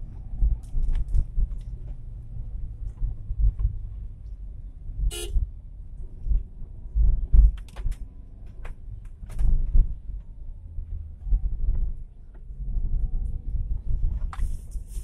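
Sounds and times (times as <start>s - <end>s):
car cabin road rumble: 0.0s - 15.0s
sharp clicks and rattles: 7.3s - 10.3s.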